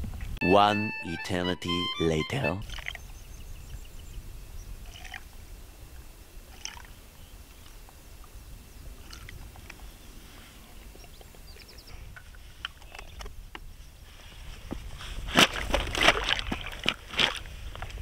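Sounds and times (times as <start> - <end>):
low wind rumble on microphone: 0.0 - 0.4, 2.6 - 18.0
quick high trill: 0.4 - 2.6.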